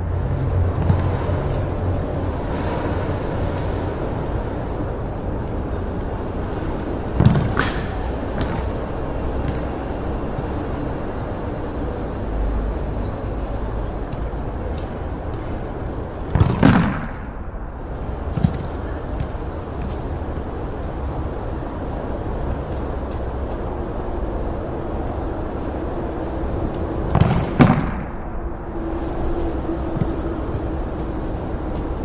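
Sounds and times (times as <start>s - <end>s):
steady outdoor hum: 0.0s - 32.0s
football slamming against concrete wall: 16.4s - 17.2s.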